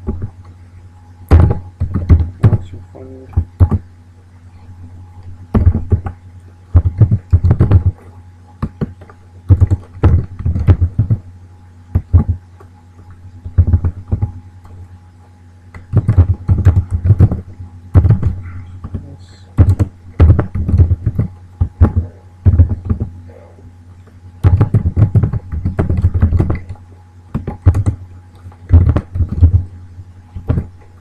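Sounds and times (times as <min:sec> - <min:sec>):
steady low hum: 0:00.0 - 0:31.0
computer keyboard typing: 0:08.7 - 0:11.2, 0:15.8 - 0:17.4, 0:18.0 - 0:23.1, 0:24.4 - 0:28.0.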